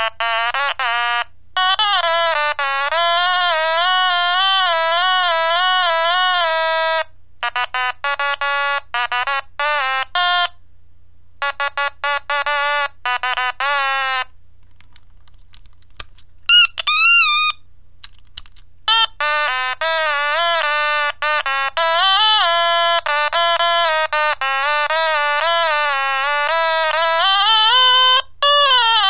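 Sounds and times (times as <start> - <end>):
clicks: 14.6 - 18.7
bright electronic melody: 16.5 - 17.6.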